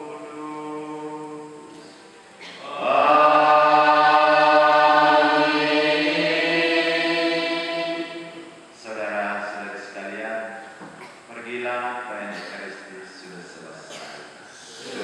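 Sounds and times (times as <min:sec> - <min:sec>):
choir singing a chant: 0:02.4 - 0:08.7, 0:14.6 - 0:15.0.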